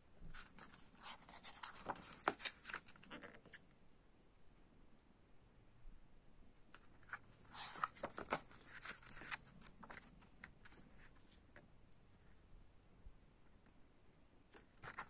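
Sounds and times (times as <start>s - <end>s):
paper page rustling: 0.3s - 3.6s, 7.0s - 11.4s, 14.7s - 15.0s.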